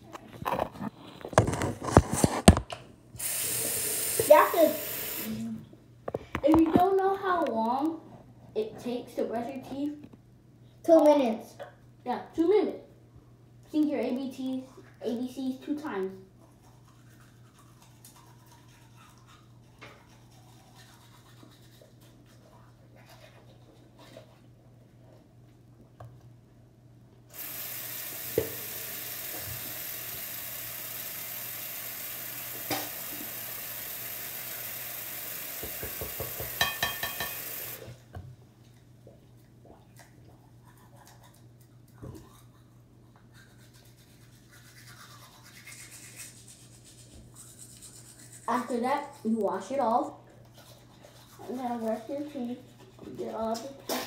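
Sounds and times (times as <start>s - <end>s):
toothbrush bristles scrubbing teeth: 14.4s - 24.5s, 27.4s - 37.8s, 39.9s - 53.8s.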